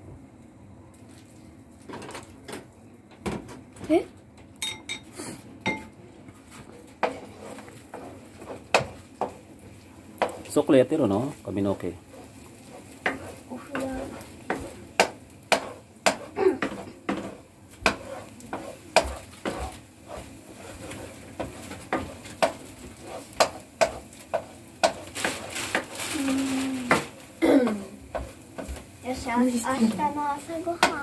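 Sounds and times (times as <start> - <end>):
wooden spatula scraping frying pan: 6.4 - 31.0
eggs sizzling in oil: 6.8 - 31.0
spatula knocking against pan: 7.9 - 9.4, 14.5 - 19.8, 21.3 - 22.7, 23.3 - 25.9, 30.8 - 31.0.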